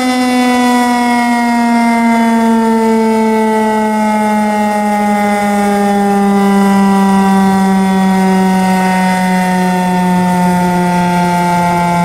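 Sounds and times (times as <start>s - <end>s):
warning siren alert tone: 0.0s - 12.0s.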